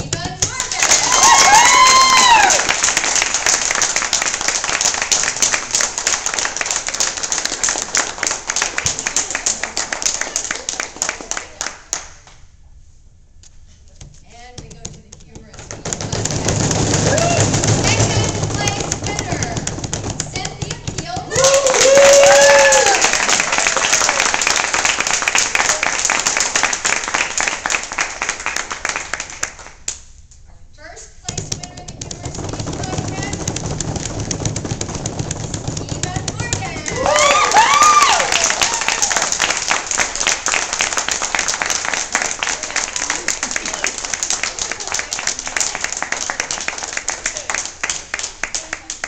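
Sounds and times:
audience applauding: 0.7s - 12.1s, 21.3s - 29.8s, 32.4s - 49.0s.

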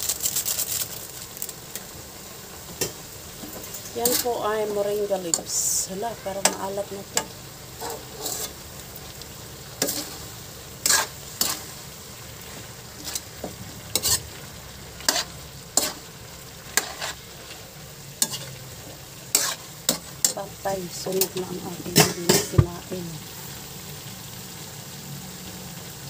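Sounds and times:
low sizzle: 0.0s - 26.0s
metal ladle scraping a wok: 2.8s - 8.7s, 9.7s - 20.5s.

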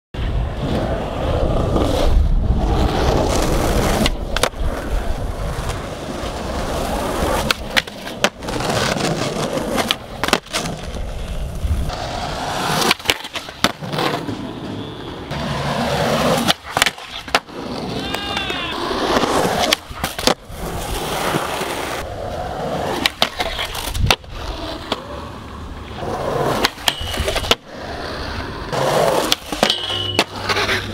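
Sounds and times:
skateboard wheels rolling on concrete: 0.2s - 30.9s
skateboard clacks: 3.2s - 30.9s
skateboard sliding on metal rail: 25.8s - 30.9s.

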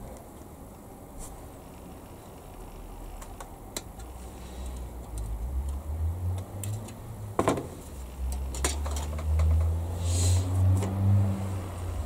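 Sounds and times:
plastic and tools tapping: 8.3s - 9.8s.

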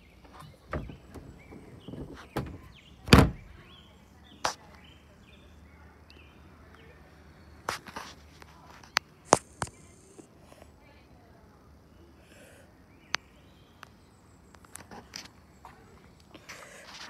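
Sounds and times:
hollow plastic thump: 0.3s - 3.6s.

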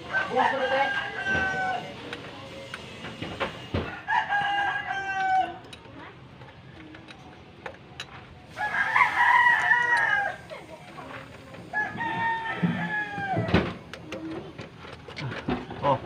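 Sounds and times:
rooster crowing: 0.0s - 2.0s, 3.9s - 5.6s, 8.5s - 10.4s, 11.7s - 13.5s.

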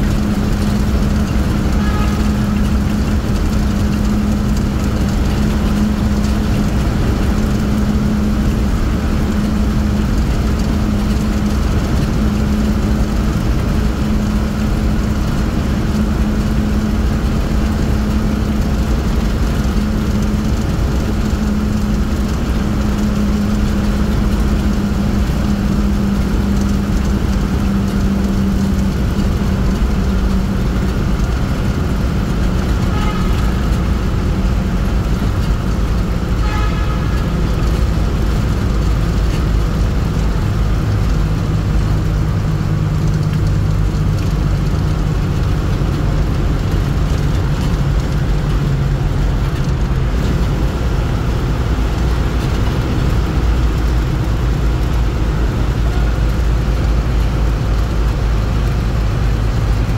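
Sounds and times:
vehicle engine and road noise: 0.0s - 59.9s
car horn: 1.6s - 3.0s, 32.8s - 33.9s, 36.4s - 37.8s.

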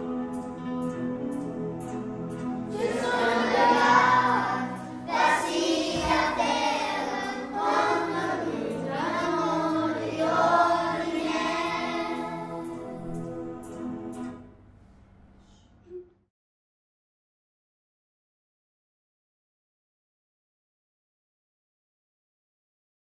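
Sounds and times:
children's choir singing: 2.3s - 14.4s.

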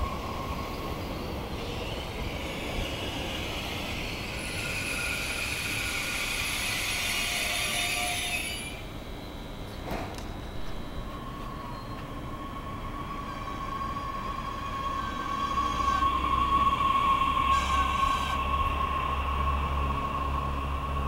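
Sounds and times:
train rumbling: 0.0s - 21.0s
high squealing tones: 10.8s - 19.0s.

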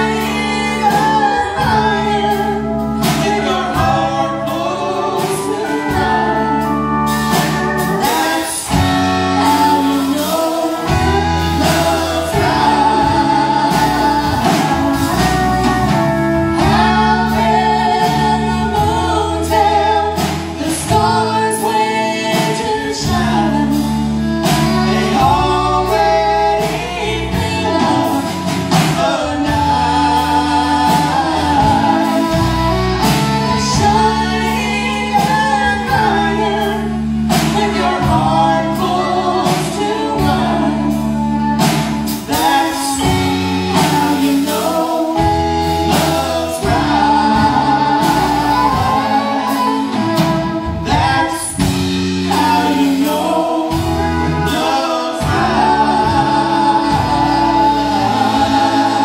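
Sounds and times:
country band playing: 0.0s - 59.0s
man and woman singing duet: 0.0s - 59.0s.

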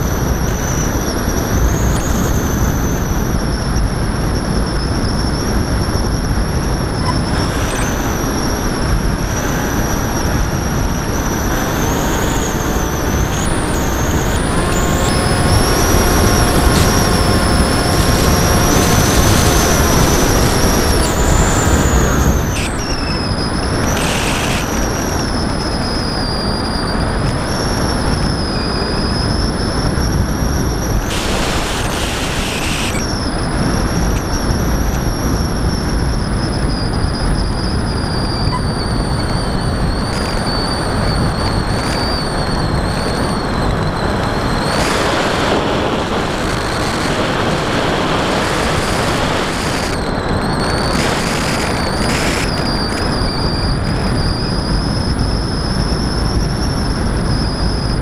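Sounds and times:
electric motor whine: 0.0s - 58.0s
wind rush: 0.0s - 58.0s.

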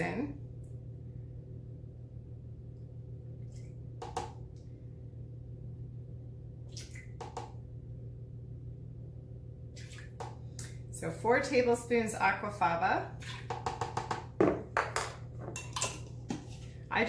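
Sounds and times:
steady low hum: 0.0s - 17.0s
spoon clicks and small splashes: 15.6s - 16.2s.

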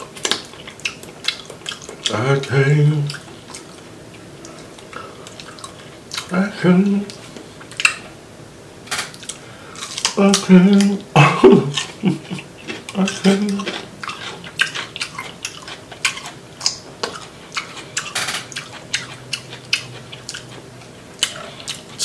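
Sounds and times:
wet chewing and smacking: 0.0s - 6.4s, 7.1s - 8.1s, 9.1s - 22.0s
muffled vocal sounds: 2.0s - 3.3s, 6.2s - 7.2s, 10.0s - 13.9s
crunchy biting clicks: 12.6s - 22.0s.

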